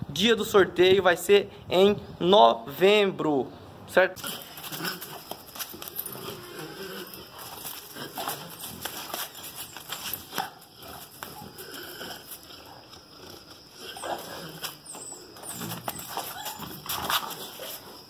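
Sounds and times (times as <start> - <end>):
dog claws clicking on concrete: 4.2 - 17.8.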